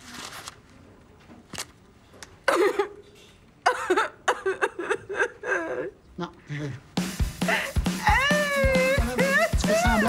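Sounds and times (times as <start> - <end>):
woman fake crying: 3.7 - 6.0, 7.4 - 10.0.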